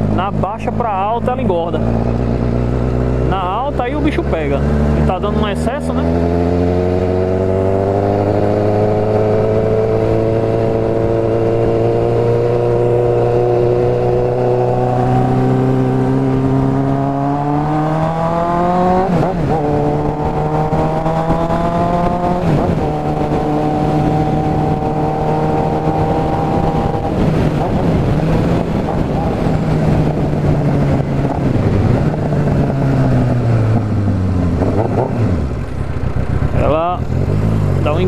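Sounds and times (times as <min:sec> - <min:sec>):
rider talking: 0:00.0 - 0:02.1, 0:03.2 - 0:06.3, 0:36.4 - 0:38.0
motorcycle engine accelerating: 0:00.0 - 0:38.0
motorcycle upshifts: 0:01.2 - 0:38.0.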